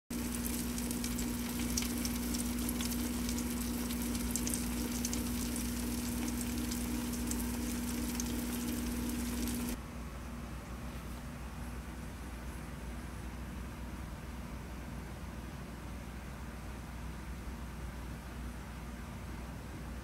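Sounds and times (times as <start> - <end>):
electric hum: 0.1 - 9.8
peppers sizzling and crackling: 0.1 - 9.8.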